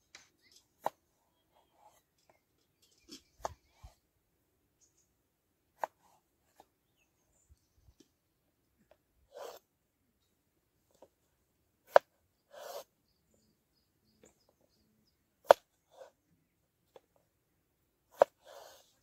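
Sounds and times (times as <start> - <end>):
knife scraping potato pieces: 9.3 - 9.7, 11.9 - 12.9.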